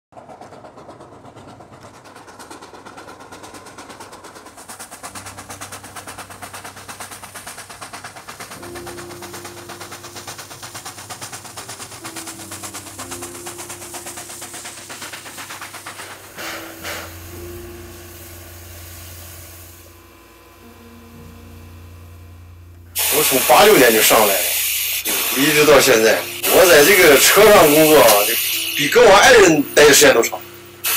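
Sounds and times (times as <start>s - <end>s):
steam locomotive exhaust chuffing: 0.1s - 30.9s
steam hissing: 0.2s - 30.9s
low hum: 17.1s - 23.0s.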